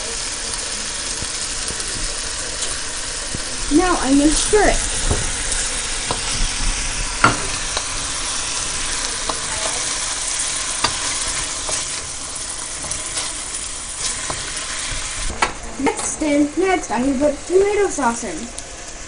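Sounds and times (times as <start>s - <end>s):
food sizzling in a wok: 0.0s - 19.0s
wooden spatula scraping a pan: 8.2s - 15.2s.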